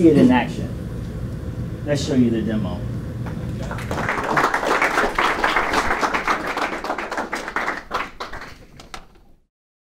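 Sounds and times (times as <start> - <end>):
audience applauding: 3.3 - 9.2.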